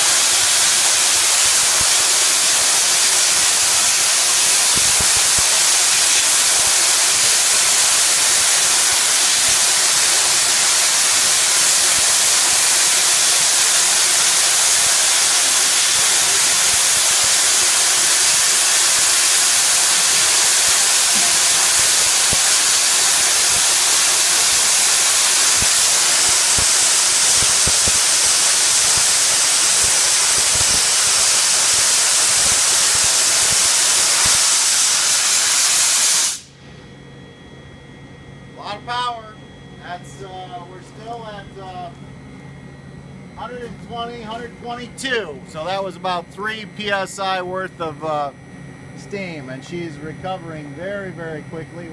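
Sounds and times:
steam hissing from a valve: 0.0s - 36.6s.

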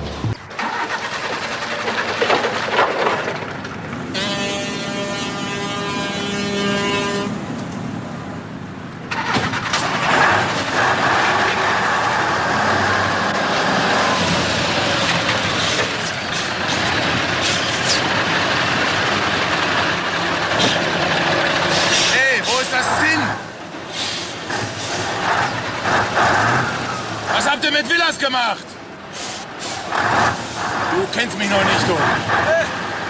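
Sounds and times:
engine knocks: 0.0s - 4.1s, 9.0s - 13.5s
diesel truck engine running hard: 0.0s - 33.0s.

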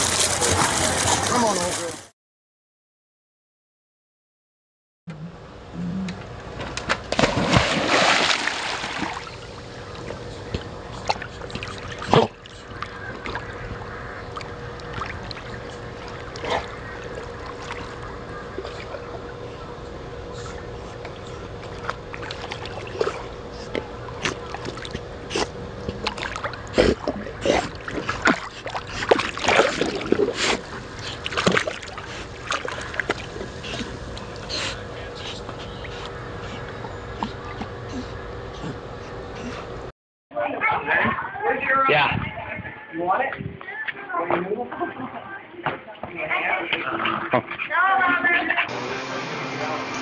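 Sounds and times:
dog paddling and splashing: 0.0s - 2.1s, 7.1s - 19.1s, 21.6s - 34.5s
faint steady hum: 5.1s - 39.9s.

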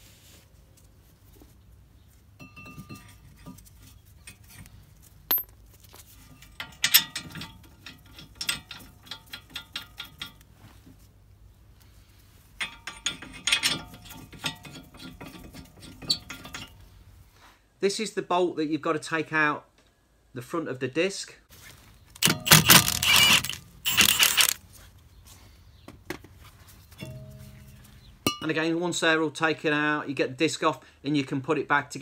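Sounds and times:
sharp metallic clink: 5.3s - 5.5s, 22.2s - 24.6s, 27.0s - 28.5s
ratchet wrench clicking: 22.2s - 24.6s.

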